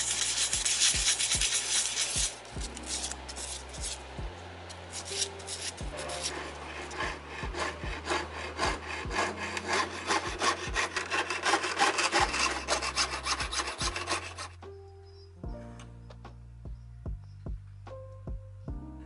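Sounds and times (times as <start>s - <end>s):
saw blade cutting metal sheet: 0.0s - 4.0s, 4.7s - 14.6s.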